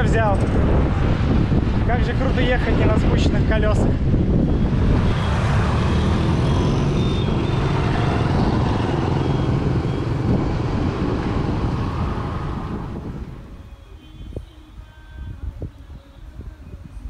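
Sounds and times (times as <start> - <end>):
wind rumble on microphone: 0.0 - 17.0
motor scooters passing: 4.0 - 13.6.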